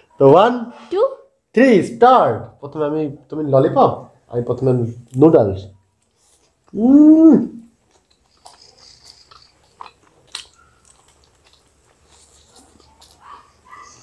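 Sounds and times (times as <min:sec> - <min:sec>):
people chewing food: 0:05.8 - 0:14.0
mouth clicks and smacks: 0:07.5 - 0:13.6.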